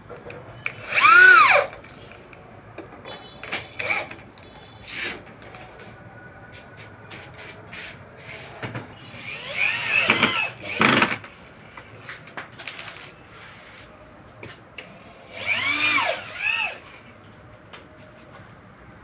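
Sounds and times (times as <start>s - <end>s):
electric drill motor whine: 0.8s - 1.7s, 3.8s - 4.1s, 9.1s - 11.2s, 15.3s - 16.8s.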